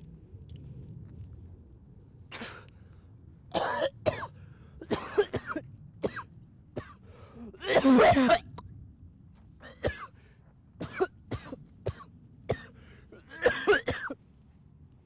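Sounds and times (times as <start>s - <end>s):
person coughing: 2.3s - 2.6s, 3.5s - 8.5s, 9.6s - 10.2s, 10.8s - 14.2s.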